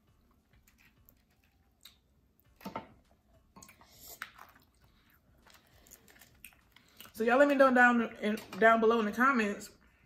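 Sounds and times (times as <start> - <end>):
wet clicks and squishes: 0.0 - 7.2
person chewing: 0.1 - 7.2.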